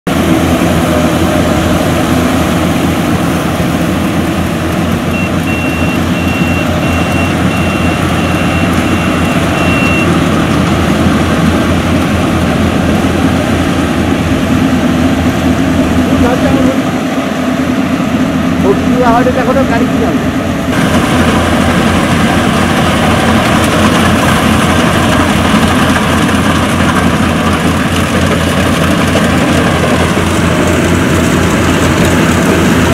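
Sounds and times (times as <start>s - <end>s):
combine harvester engine drone: 0.1s - 32.9s
short high beeps: 5.1s - 10.1s.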